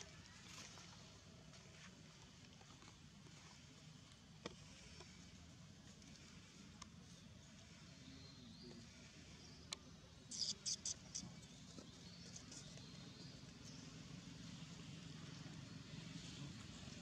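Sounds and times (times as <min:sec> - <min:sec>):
faint low background hum: 0:00.0 - 0:17.0
high-pitched animal chirps: 0:10.3 - 0:11.2.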